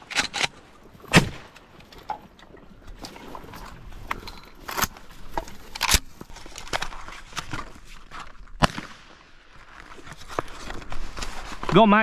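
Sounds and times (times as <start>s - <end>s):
dry brush crackling and rustling: 4.6s - 12.0s.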